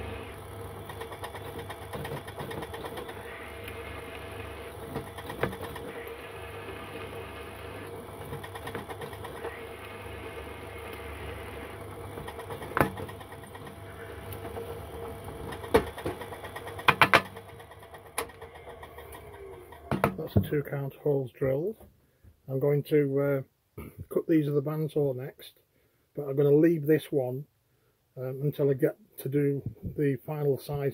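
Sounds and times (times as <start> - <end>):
pillar drill humming: 0.0 - 20.6.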